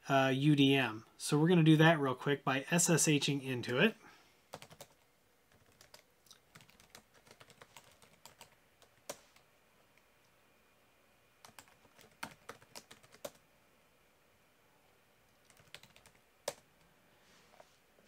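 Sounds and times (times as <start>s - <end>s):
computer keyboard typing: 4.5s - 9.4s, 11.4s - 13.4s, 15.3s - 16.6s.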